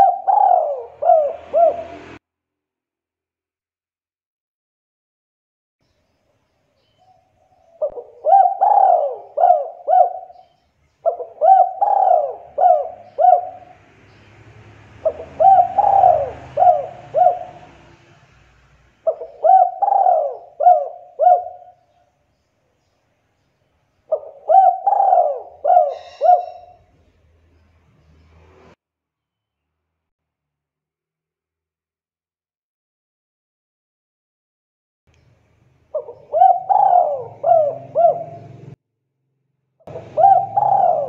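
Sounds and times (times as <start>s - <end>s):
dove cooing: 0.0s - 2.2s, 7.5s - 13.8s, 15.0s - 18.0s, 19.0s - 21.9s, 24.1s - 26.9s, 35.9s - 38.8s, 39.9s - 41.0s.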